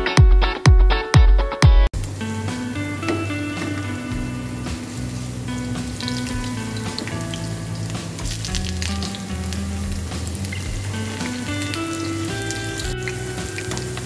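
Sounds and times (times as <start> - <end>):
background music: 0.0 - 14.0
potato slices deep-frying in oil: 3.7 - 14.0.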